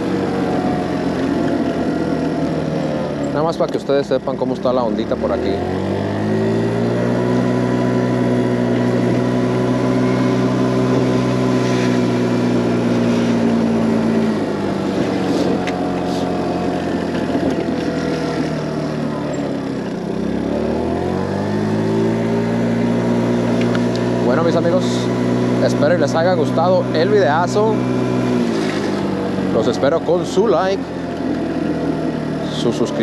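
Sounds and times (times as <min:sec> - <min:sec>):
scooter engine running: 0:00.0 - 0:33.0
wind rushing over microphone: 0:10.1 - 0:17.8.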